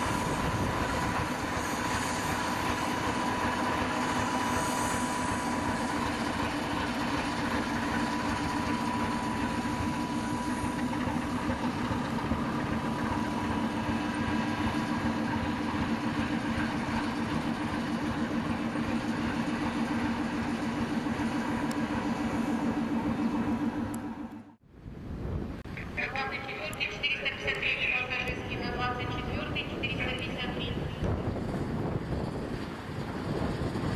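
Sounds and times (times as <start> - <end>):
diesel locomotive engine humming: 0.0 - 33.9.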